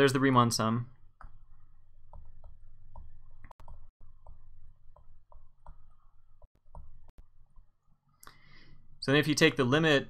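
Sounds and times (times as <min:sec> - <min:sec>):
stylus tapping on tablet screen: 0:01.2 - 0:07.7.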